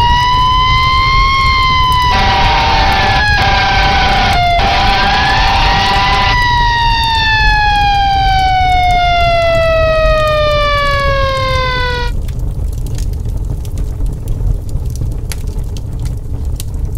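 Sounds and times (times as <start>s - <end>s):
siren wailing: 0.0s - 12.2s.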